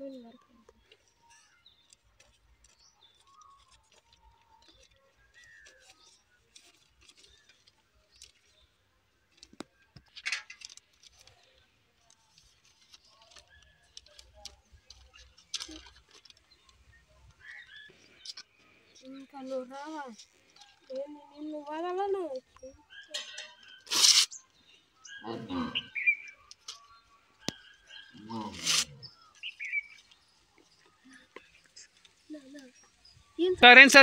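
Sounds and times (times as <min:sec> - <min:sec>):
paper rustling and crinkling: 0:01.8 - 0:22.6.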